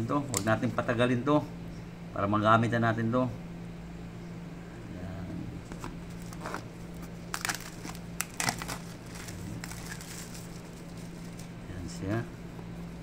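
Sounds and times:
plastic wrap crinkling: 0:05.7 - 0:11.6.

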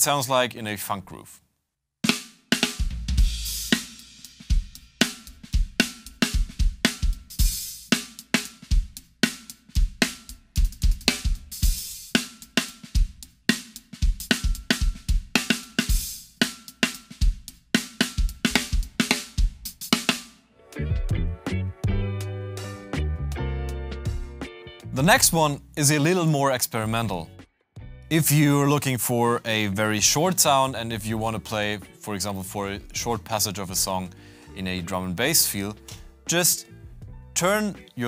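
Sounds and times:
high-tuned snare drum: 0:02.0 - 0:20.4
hi-hat: 0:03.2 - 0:20.2
kick drum: 0:06.4 - 0:07.3, 0:18.2 - 0:19.7, 0:21.1 - 0:22.2, 0:37.0 - 0:37.2.

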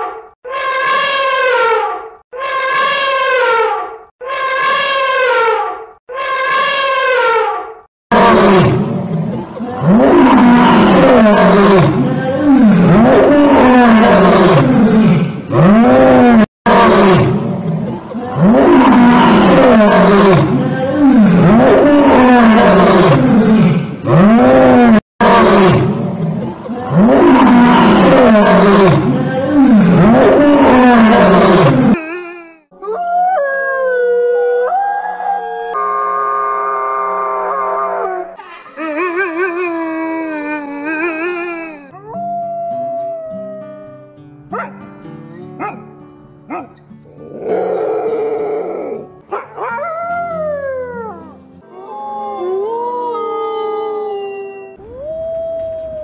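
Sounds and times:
lion roaring: 0:08.1 - 0:17.5, 0:18.4 - 0:26.0, 0:26.9 - 0:32.0, 0:46.5 - 0:52.6
wolf howling: 0:32.8 - 0:44.7, 0:46.5 - 0:56.0.

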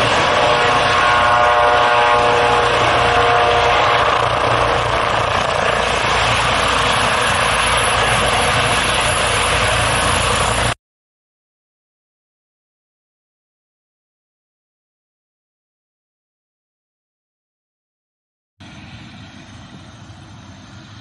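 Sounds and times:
helicopter rotor and turbine noise: 0:00.0 - 0:10.8, 0:18.6 - 0:21.0
high whine: 0:00.0 - 0:10.8.

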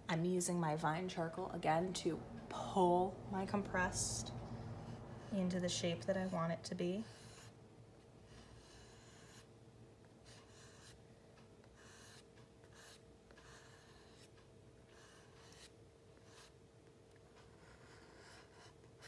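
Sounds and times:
faint steady hum: 0:00.0 - 0:19.0
charcoal scratching on paper: 0:04.6 - 0:07.6, 0:08.2 - 0:09.5, 0:10.2 - 0:11.0, 0:11.6 - 0:16.6, 0:17.3 - 0:19.0.

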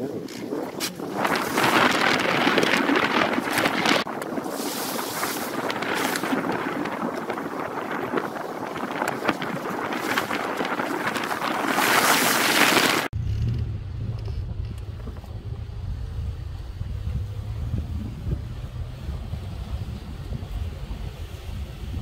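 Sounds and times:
wind rushing over microphone: 0:00.0 - 0:22.0
low steady rumble: 0:13.1 - 0:22.0.

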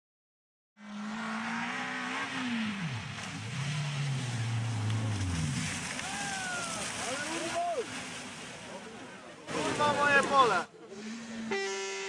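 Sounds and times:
rally car engine revving: 0:00.8 - 0:06.1.

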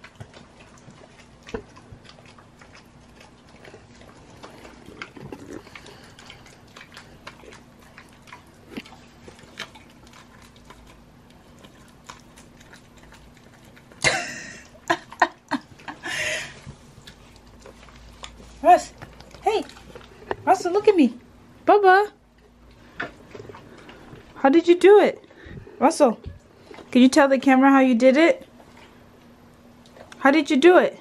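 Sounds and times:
dog licking and chewing: 0:00.0 - 0:21.5, 0:28.4 - 0:30.4.

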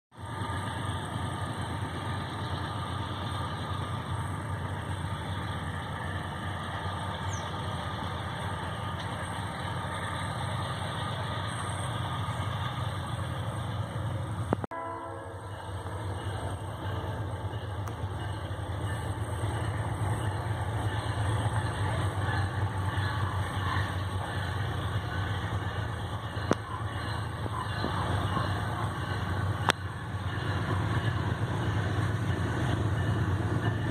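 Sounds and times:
locomotive engine rumble: 0:00.1 - 0:33.9.

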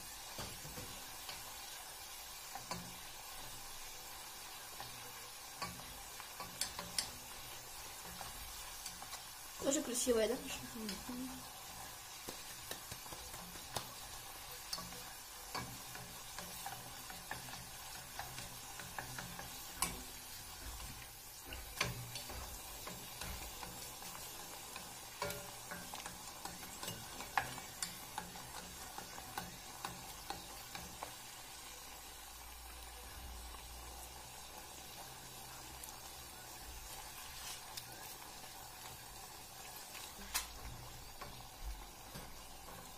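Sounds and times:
hot oil sizzling: 0:00.0 - 0:42.9
wooden spatula tapping pan: 0:12.1 - 0:31.2.

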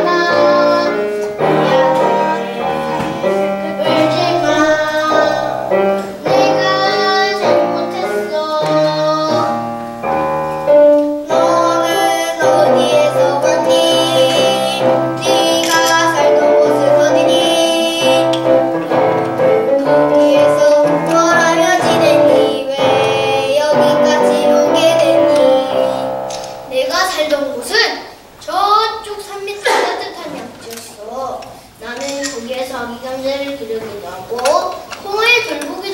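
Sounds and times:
child singing: 0:00.0 - 0:09.7, 0:11.2 - 0:18.5, 0:19.8 - 0:30.2
piano accompaniment: 0:00.0 - 0:27.7.

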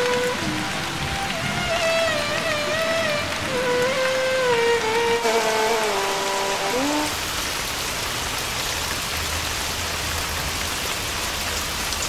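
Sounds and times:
background music: 0:00.0 - 0:07.2
heavy rain pattering: 0:00.0 - 0:12.0.

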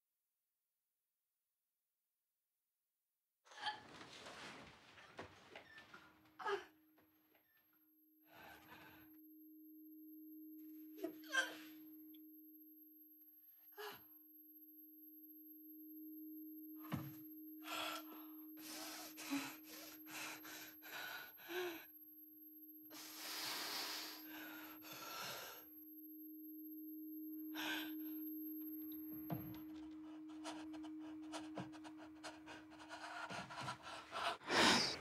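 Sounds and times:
steady low tone: 0:08.1 - 0:35.0
person breathing raggedly: 0:17.6 - 0:21.9, 0:22.9 - 0:25.6, 0:30.0 - 0:35.0.

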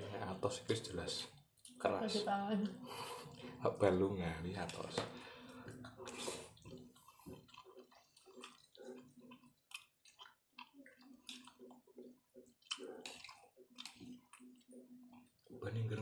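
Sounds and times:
wet chewing and mouth smacking: 0:04.6 - 0:15.6.

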